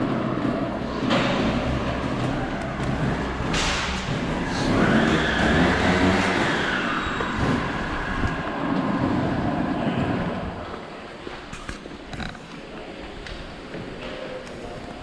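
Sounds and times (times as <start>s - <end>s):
motor vehicle running: 0.0s - 10.7s.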